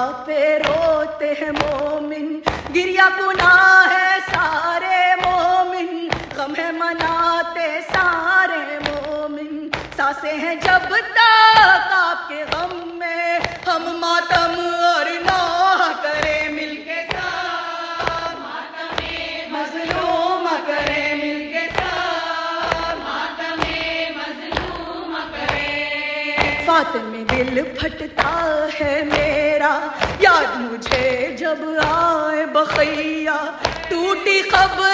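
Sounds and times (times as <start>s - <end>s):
steady drum beat: 12.4s - 34.9s.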